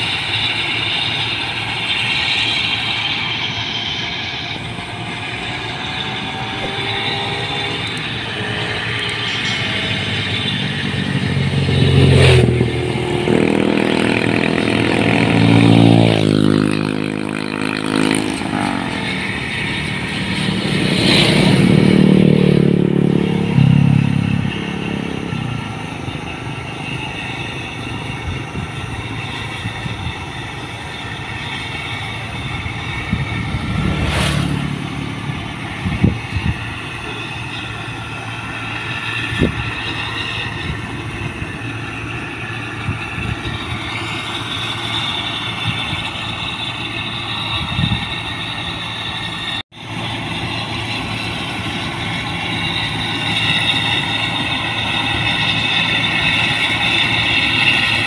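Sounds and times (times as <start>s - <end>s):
diesel engine under load: 0.0s - 58.0s.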